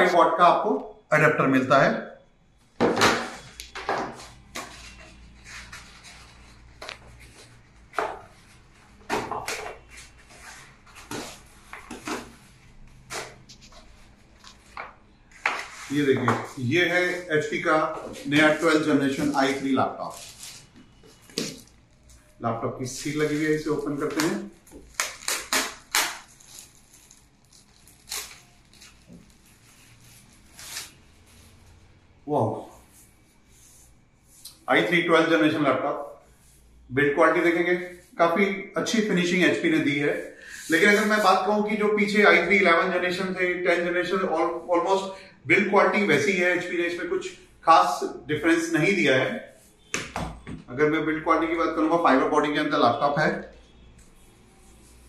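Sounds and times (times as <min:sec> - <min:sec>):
cardboard packaging scraping and rustling: 0:08.2 - 0:16.3, 0:18.0 - 0:22.3, 0:23.1 - 0:31.9
plastic wrapping crinkling: 0:18.2 - 0:32.0.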